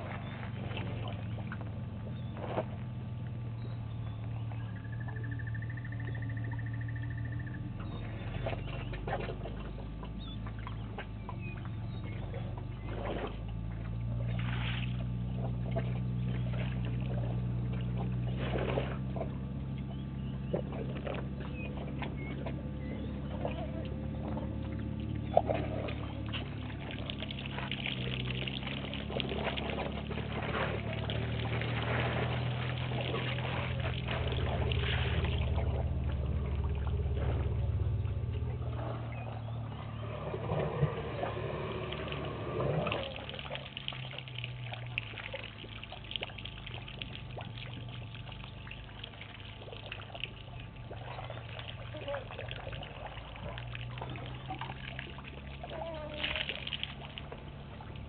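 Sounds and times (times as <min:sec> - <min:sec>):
steady low hum: 0:00.0 - 0:58.0
water splashing and trickling: 0:00.0 - 0:58.0.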